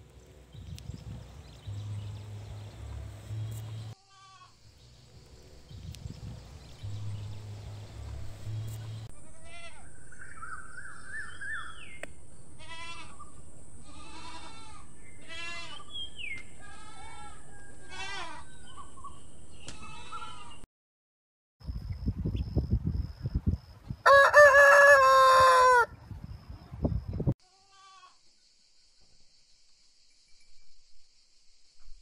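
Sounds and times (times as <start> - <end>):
goats bleating: 13.8 - 15.8.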